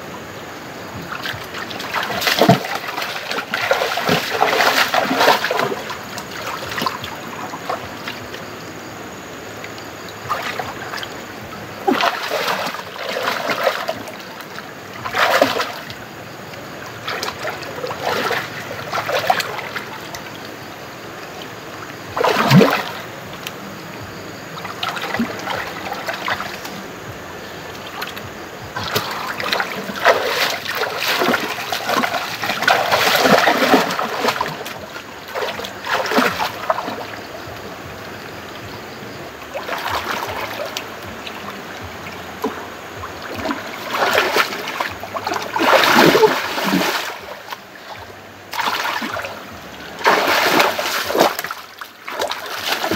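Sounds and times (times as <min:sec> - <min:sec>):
water trickling: 0:00.0 - 0:52.9
hands splashing in water: 0:28.8 - 0:36.9, 0:43.3 - 0:47.2, 0:50.0 - 0:52.9.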